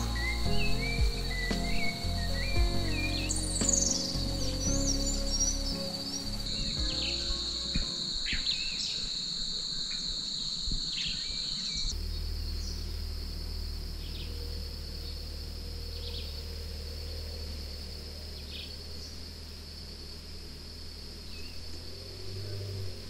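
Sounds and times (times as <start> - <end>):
bird chirps: 0.0 - 13.0
insects buzzing: 0.0 - 23.0.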